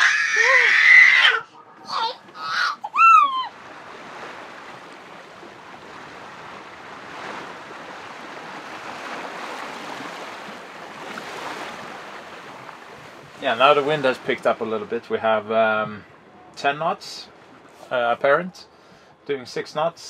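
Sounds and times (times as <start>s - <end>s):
baby squealing and babbling: 0.0s - 3.5s
water rushing along hull: 0.0s - 20.0s.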